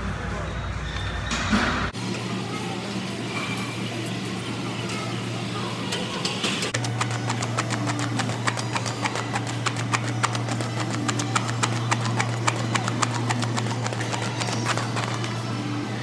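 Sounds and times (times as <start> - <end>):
battle ropes slapping floor: 6.8 - 15.4.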